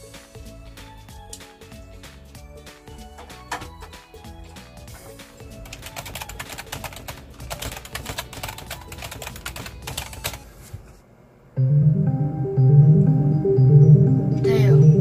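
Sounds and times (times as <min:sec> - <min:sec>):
quiet background music: 0:00.0 - 0:11.0, 0:11.6 - 0:15.0
fast keyboard typing: 0:05.6 - 0:10.5.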